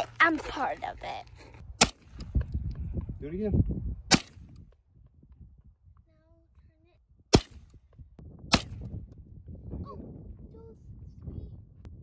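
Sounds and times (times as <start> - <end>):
gunshots: 4.1 - 4.5, 7.3 - 7.7.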